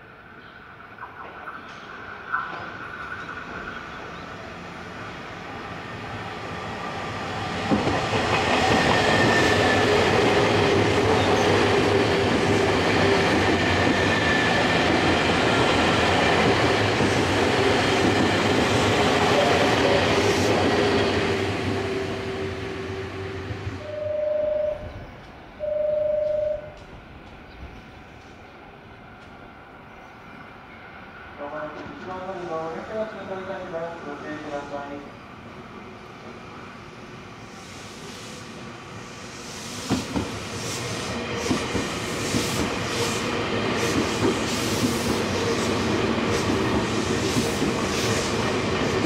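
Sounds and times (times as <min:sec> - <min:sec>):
electric train rumbling past: 0:00.0 - 0:49.0
short steady beeps: 0:23.9 - 0:25.0, 0:25.6 - 0:26.8.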